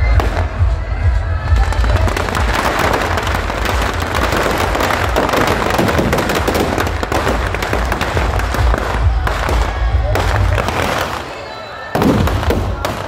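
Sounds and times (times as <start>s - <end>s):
firecrackers crackling: 0.0s - 13.0s.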